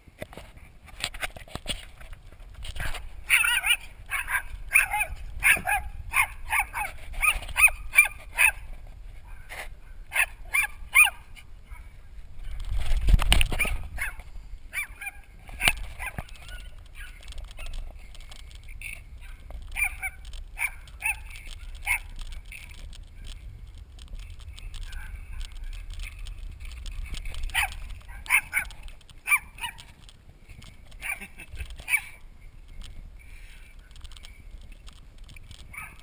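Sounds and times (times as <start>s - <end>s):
wind and road noise: 0.0s - 36.0s
small dog barking: 2.8s - 8.7s, 10.1s - 11.9s, 13.6s - 17.8s, 19.2s - 22.2s, 27.5s - 29.9s, 31.0s - 32.2s.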